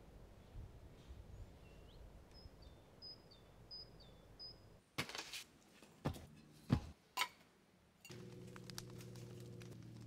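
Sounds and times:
bird chirping: 0:01.3 - 0:04.8.

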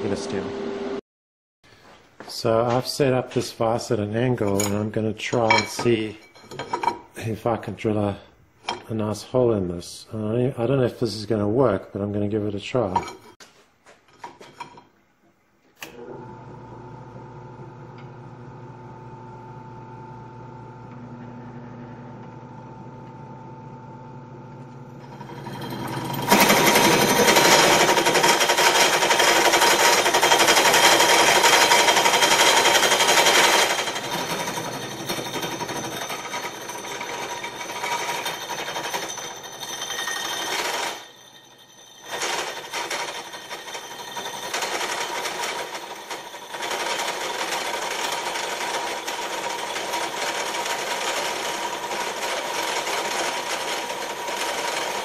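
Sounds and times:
drill press motor humming: 0:15.8 - 0:55.0
hole saw rasping through metal: 0:25.1 - 0:55.0.

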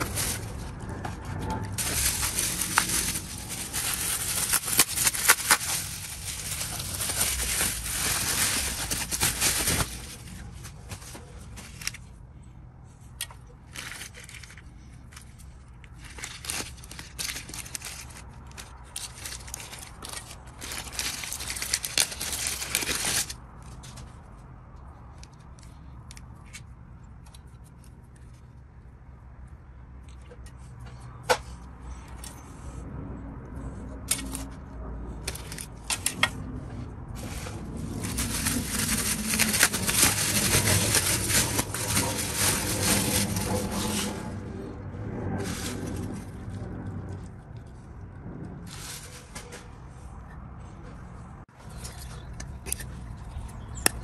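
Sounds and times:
bubble wrap crinkling: 0:00.0 - 0:12.0, 0:15.8 - 0:23.4, 0:37.1 - 0:47.2
plastic bag rustling: 0:00.0 - 0:12.0, 0:15.9 - 0:23.4, 0:37.1 - 0:46.8, 0:48.6 - 0:49.8.

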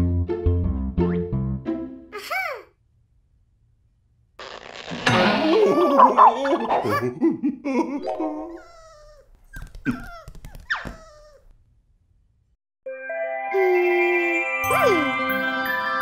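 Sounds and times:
cartoon dog whining: 0:05.3 - 0:07.1, 0:08.0 - 0:11.5.

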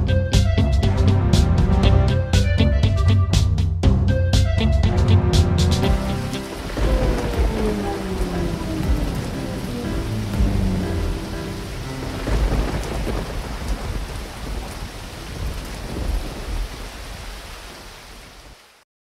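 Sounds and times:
heavy rain: 0:05.1 - 0:18.8
rolling thunder: 0:05.5 - 0:17.8.

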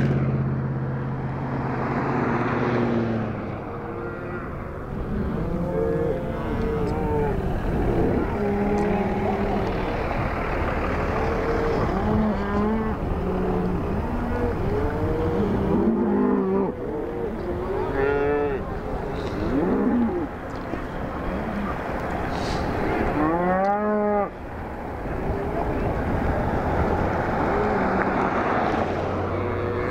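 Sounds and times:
steady low rumble: 0:03.3 - 0:15.9
cattle mooing: 0:03.6 - 0:10.1, 0:10.9 - 0:20.4, 0:22.4 - 0:24.4, 0:29.2 - 0:29.9.

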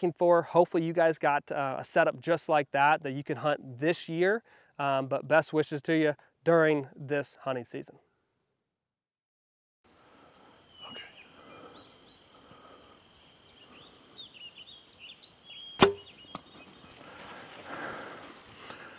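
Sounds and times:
insect drone: 0:01.0 - 0:09.0, 0:09.9 - 0:18.9
birds chirping: 0:10.1 - 0:18.9
sharp crack of a bow shot: 0:15.8 - 0:16.5.

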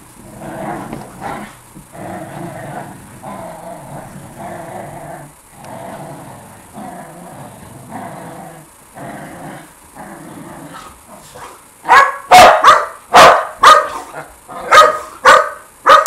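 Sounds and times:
dogs growling: 0:00.2 - 0:11.6
dog barking: 0:11.9 - 0:16.0.

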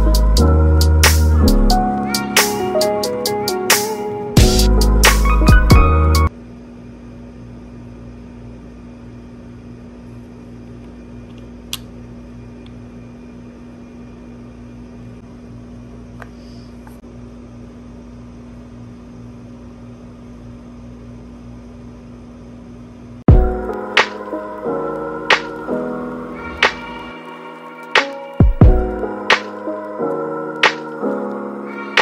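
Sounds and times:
low electrical hum: 0:06.3 - 0:26.6.

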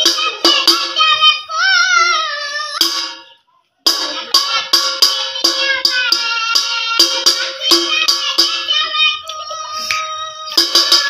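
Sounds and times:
fast beat: 0:00.0 - 0:01.2, 0:02.8 - 0:09.2, 0:09.9 - 0:11.0.

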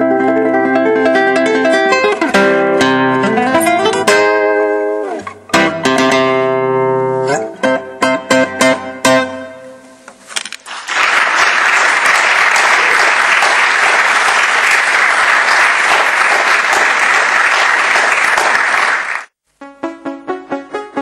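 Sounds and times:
guitar note: 0:00.0 - 0:10.1
audience applauding: 0:10.6 - 0:19.4.

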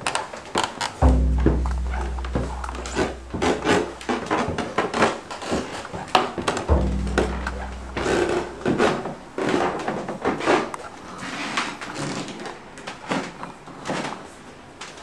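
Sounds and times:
low hum: 0:01.0 - 0:04.1, 0:06.7 - 0:08.8.

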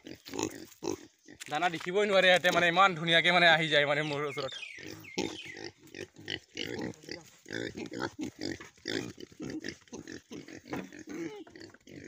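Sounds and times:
pigs grunting: 0:00.0 - 0:01.5, 0:04.4 - 0:12.0.

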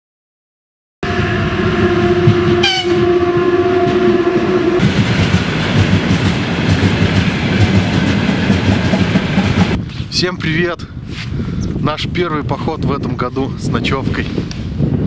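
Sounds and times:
train horn: 0:01.0 - 0:04.8
train rumbling on rails: 0:01.0 - 0:10.2.

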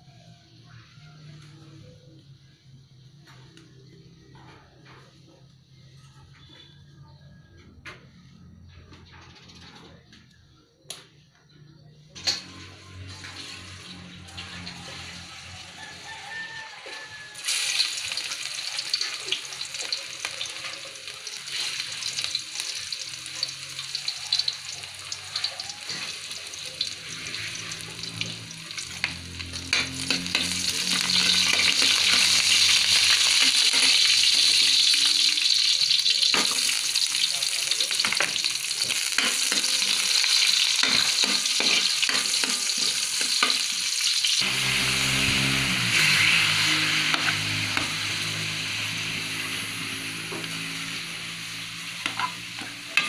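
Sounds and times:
garlic sizzling in hot oil: 0:12.4 - 0:53.0.

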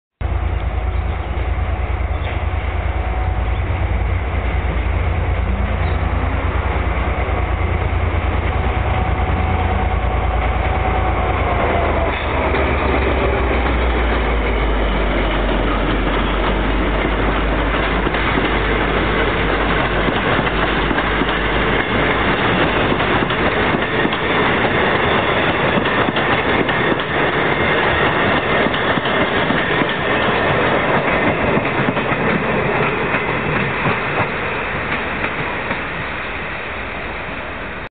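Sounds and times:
locomotive engine drone: 0:00.2 - 0:37.9
train wheels clacking on rail joints: 0:10.4 - 0:36.1.

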